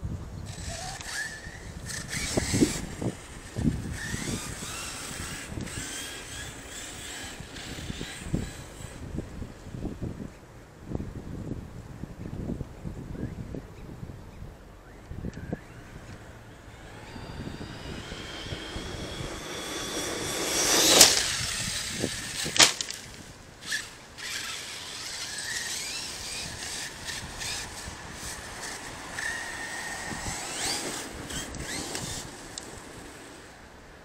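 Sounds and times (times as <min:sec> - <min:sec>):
electric motor whining: 0:00.5 - 0:09.2, 0:15.2 - 0:33.6
toy truck landing thud: 0:19.3 - 0:23.2.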